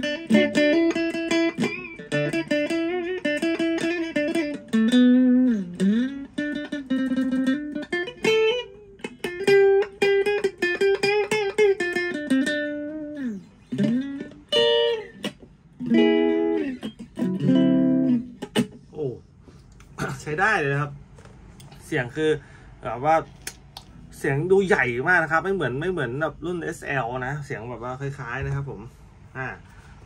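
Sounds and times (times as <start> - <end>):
electric guitar chords: 0.0 - 18.8
electric guitar melody: 0.0 - 18.9.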